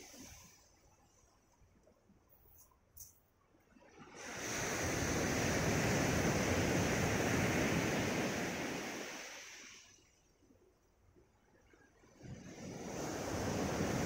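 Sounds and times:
waves washing up a gravel shore: 0:03.9 - 0:10.0, 0:12.2 - 0:14.0.

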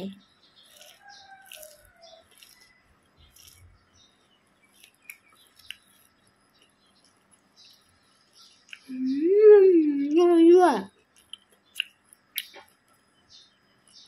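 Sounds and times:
sharp crackles: 0:00.6 - 0:03.8, 0:04.6 - 0:08.9
person chewing crispy food: 0:00.6 - 0:08.9, 0:11.0 - 0:12.9.

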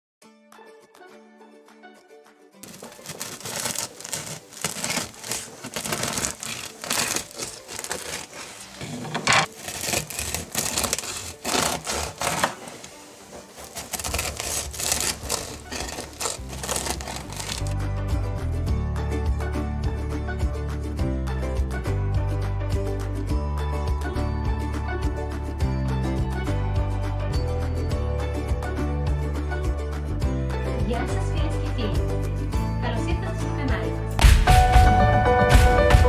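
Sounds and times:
knife sawing through crusty bread: 0:02.6 - 0:17.8.

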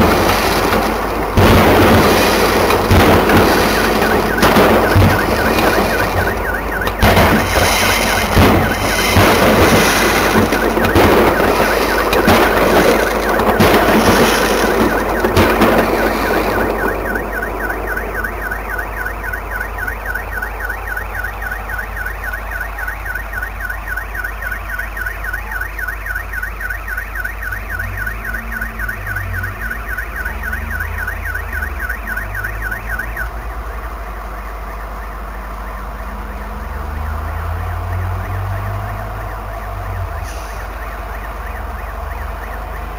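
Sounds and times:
firework crackling bangs: 0:00.0 - 0:32.8
car alarm warbling: 0:00.0 - 0:42.9
low rumble of traffic: 0:00.0 - 0:42.9.

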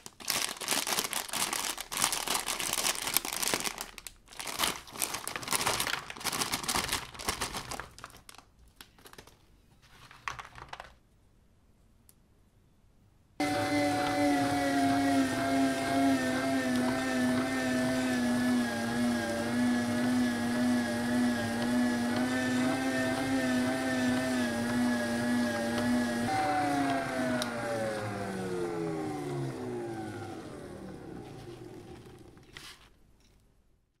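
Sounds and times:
electric meat grinder motor humming: 0:13.4 - 0:32.4.

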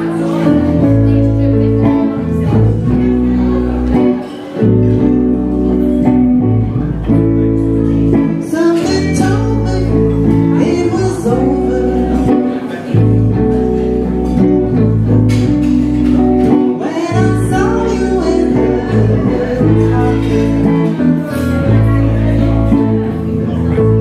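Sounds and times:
electric guitar: 0:00.0 - 0:24.0
low bass line: 0:00.0 - 0:24.0
woman singing into microphone: 0:16.8 - 0:20.9.

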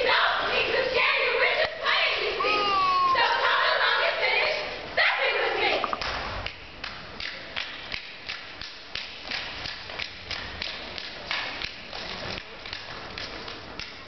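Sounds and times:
rhythmic stomps and claps: 0:05.8 - 0:14.0.

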